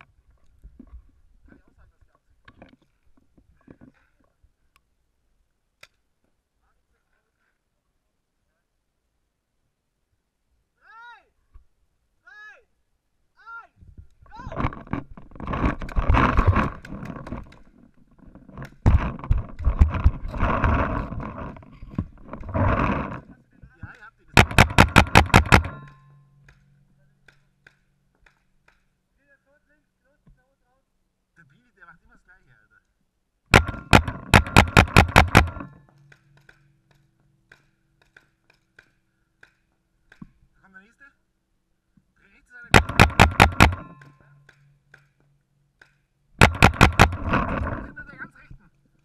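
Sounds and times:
rapid paintball marker shots: 0:14.6 - 0:17.7, 0:18.4 - 0:23.2, 0:23.9 - 0:29.0, 0:33.5 - 0:40.4, 0:42.7 - 0:45.2, 0:45.8 - 0:48.0
paintball markers popping: 0:23.9 - 0:26.6.

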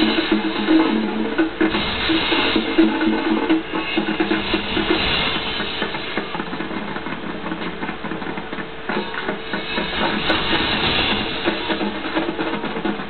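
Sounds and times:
drums beating: 0:00.0 - 0:13.0.

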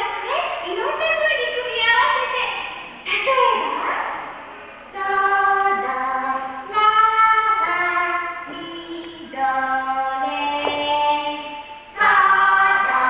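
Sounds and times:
people singing: 0:04.9 - 0:13.0.

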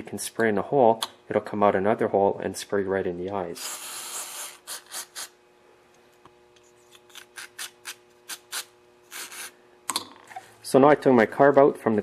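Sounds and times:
short aerosol squirts: 0:03.6 - 0:05.3, 0:07.2 - 0:09.5.

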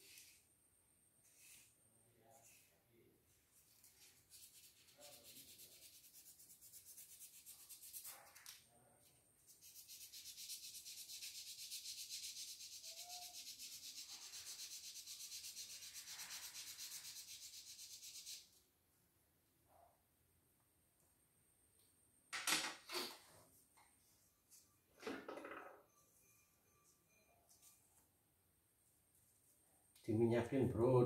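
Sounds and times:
fast scratchy rubbing: 0:03.6 - 0:08.5, 0:09.5 - 0:18.5.

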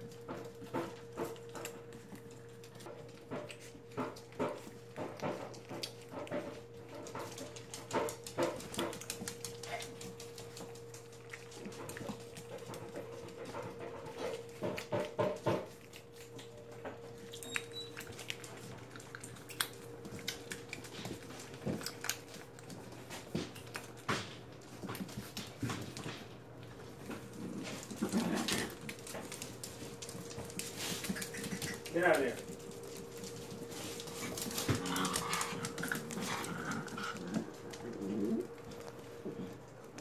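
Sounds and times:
puppies scuffling on tile floor: 0:00.0 - 0:40.0
puppies whimpering: 0:17.1 - 0:18.3.

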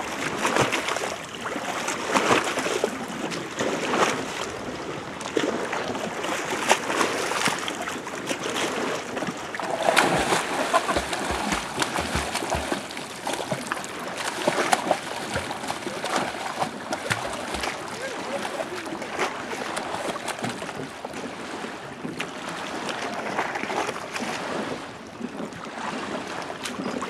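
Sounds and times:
dog splashing in water: 0:09.6 - 0:20.8.

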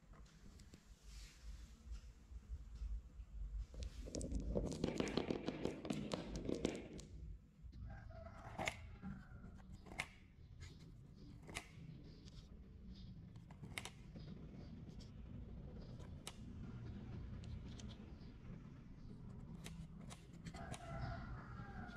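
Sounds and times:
marbles clicking together: 0:03.8 - 0:07.1
marbles rolling and clattering: 0:03.8 - 0:07.3.

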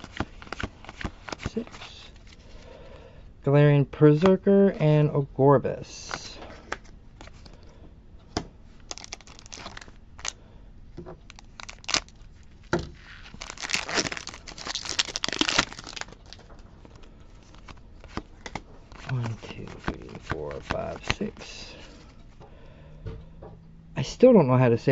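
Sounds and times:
trading cards clicking and rustling: 0:00.0 - 0:02.4, 0:08.8 - 0:10.3, 0:11.2 - 0:12.1, 0:12.7 - 0:21.8
foil wrapper tearing and crinkling: 0:08.9 - 0:10.4, 0:11.3 - 0:12.2, 0:13.0 - 0:17.7.

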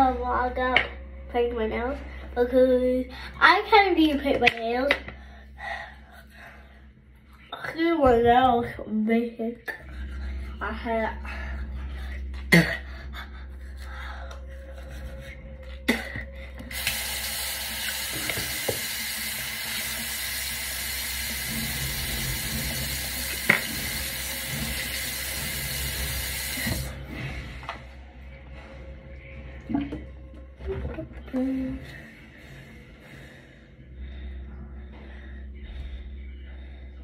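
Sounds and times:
faucet water running: 0:16.6 - 0:27.0.

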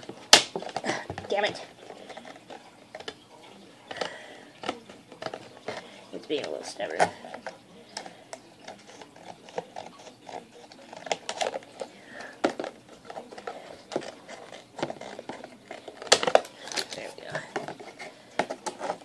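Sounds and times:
scissors cutting plastic: 0:06.4 - 0:19.0.

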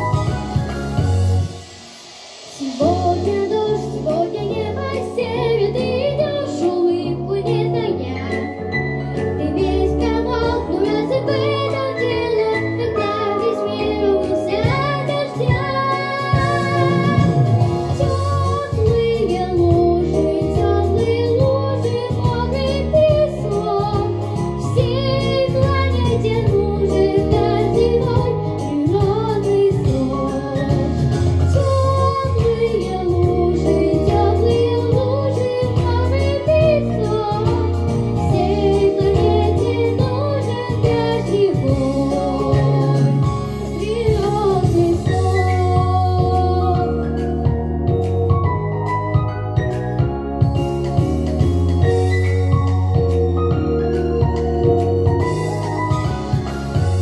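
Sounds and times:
instrumental music with bass: 0:00.0 - 0:01.9, 0:02.5 - 0:57.0
girl singing into microphone: 0:02.6 - 0:08.5, 0:09.4 - 0:47.2.

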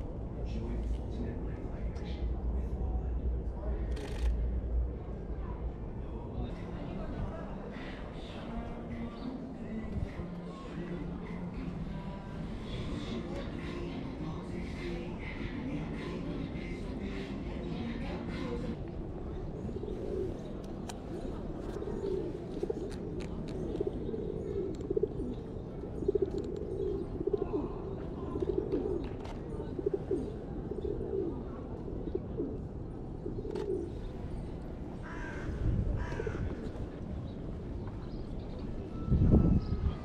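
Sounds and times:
bird cooing: 0:19.6 - 0:34.1.

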